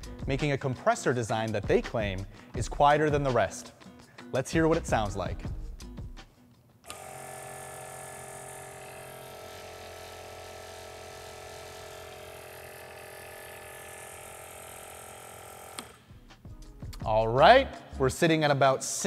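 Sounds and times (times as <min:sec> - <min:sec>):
air compressor running: 0:06.9 - 0:16.1.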